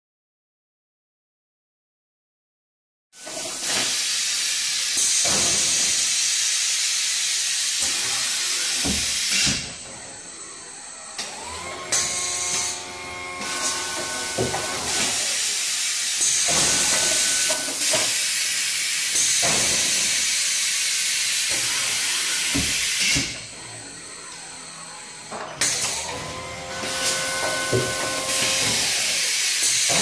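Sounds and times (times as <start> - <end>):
loud air hiss: 3.3 - 9.6, 13.4 - 23.2
motor whine: 7.8 - 17.8, 21.5 - 29.6.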